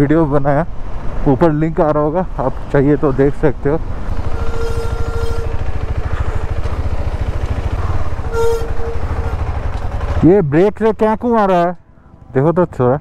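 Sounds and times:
motorcycle engine running: 0:02.2 - 0:13.0
steady buzzing tone: 0:03.9 - 0:10.2.

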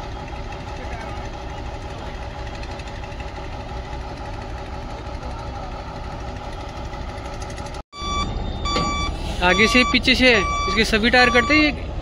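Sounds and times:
crane diesel engine idling: 0:00.0 - 0:08.2.

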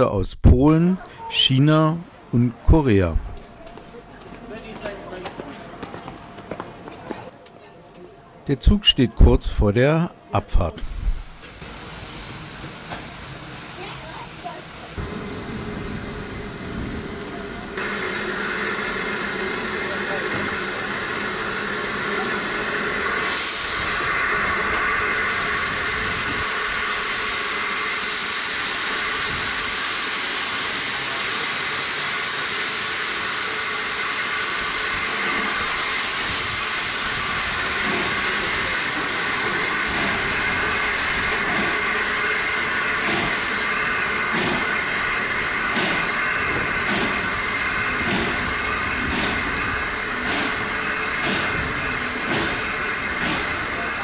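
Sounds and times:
steam locomotive hissing: 0:10.7 - 0:54.0
locomotive chuffing beats: 0:15.0 - 0:54.0.

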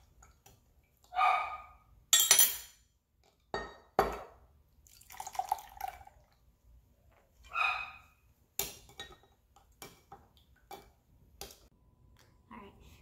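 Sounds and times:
syrup pouring: 0:04.8 - 0:06.4.

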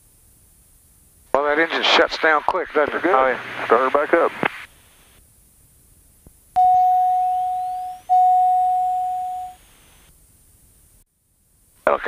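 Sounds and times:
electronic cockpit chime: 0:06.6 - 0:09.6
faint rising whistle: 0:06.6 - 0:09.6.

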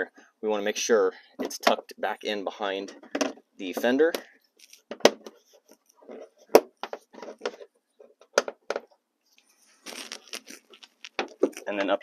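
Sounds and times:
plastic clicks and knocks: 0:02.9 - 0:04.2, 0:06.5 - 0:09.0.

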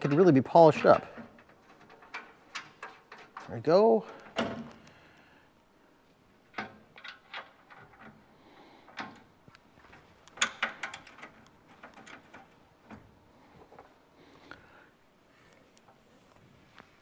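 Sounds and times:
hardware clicks and knocks: 0:00.0 - 0:05.0, 0:06.5 - 0:13.9.

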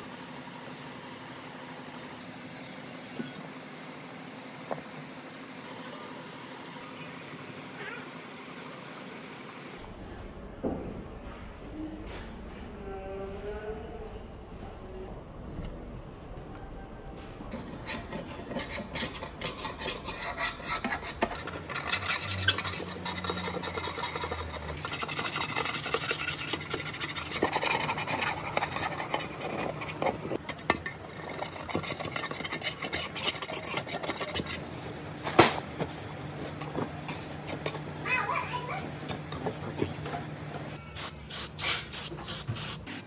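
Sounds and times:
metal scraper rasping paint off steel: 0:17.5 - 0:37.8.

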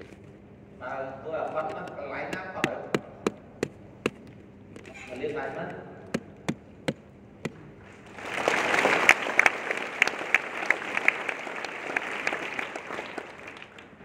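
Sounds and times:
audience applauding: 0:08.1 - 0:14.0.

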